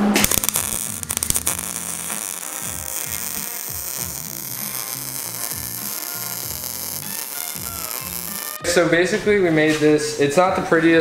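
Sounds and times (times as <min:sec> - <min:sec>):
music with bass line: 0:00.0 - 0:08.7
welder buzzing crackle: 0:00.0 - 0:08.7.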